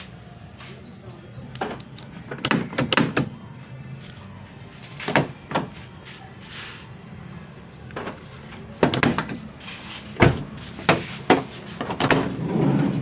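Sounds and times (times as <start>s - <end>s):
door-lock actuators clunking: 1.6s - 3.4s.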